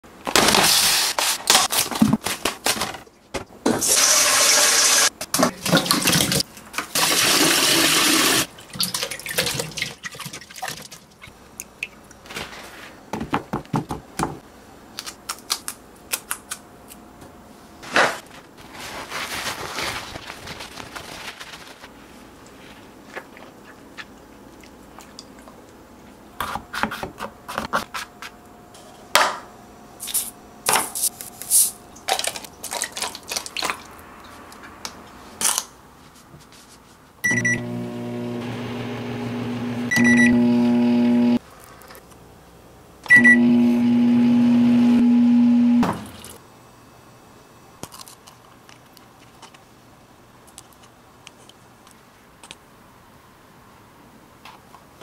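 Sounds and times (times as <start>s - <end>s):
microwave oven beeps: 37.2s - 38.4s, 39.2s - 41.4s, 43.1s - 45.8s
microwave oven humming: 37.3s - 41.4s, 43.1s - 46.2s.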